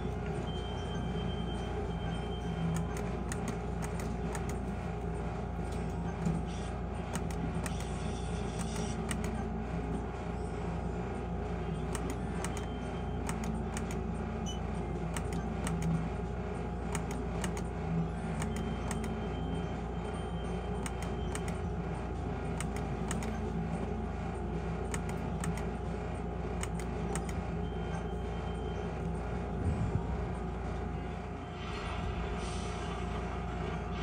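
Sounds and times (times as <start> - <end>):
steady low hum: 0.0 - 34.0
sharp clicks: 2.7 - 4.6, 11.9 - 14.0.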